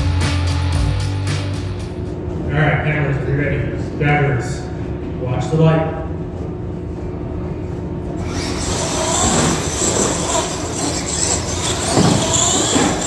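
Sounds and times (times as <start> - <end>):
toy truck motor whine: 8.2 - 13.0.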